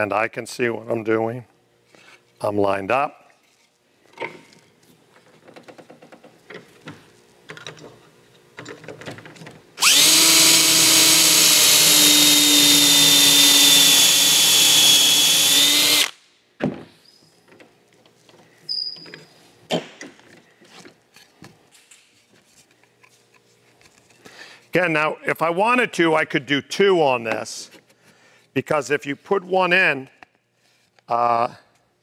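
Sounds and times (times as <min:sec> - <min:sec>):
cordless drill boring wood: 0:09.8 - 0:16.2.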